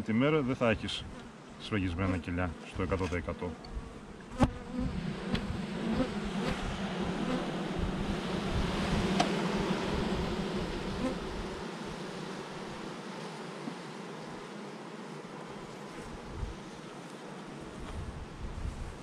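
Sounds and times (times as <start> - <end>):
honeybees buzzing: 0.0 - 19.0
hive being handled clicks: 9.1 - 9.4.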